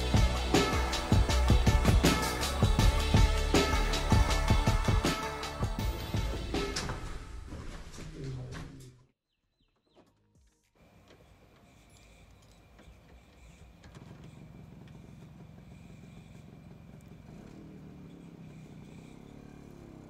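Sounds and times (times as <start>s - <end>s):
motorcycle engine running: 0.0s - 6.8s, 12.8s - 20.0s.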